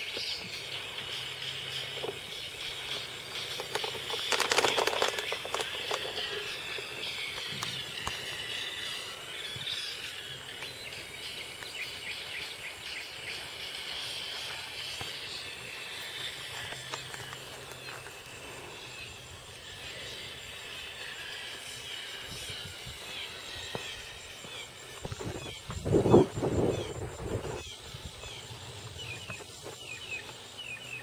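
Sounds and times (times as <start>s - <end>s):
high-pitched insect chorus: 0.0s - 31.0s
crackling rustle: 1.8s - 9.9s.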